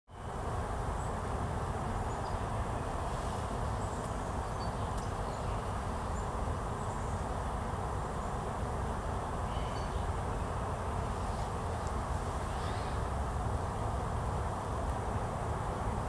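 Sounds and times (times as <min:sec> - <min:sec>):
outdoor rumble and hiss: 0:00.1 - 0:16.0
faint high bird chirps: 0:09.5 - 0:10.1.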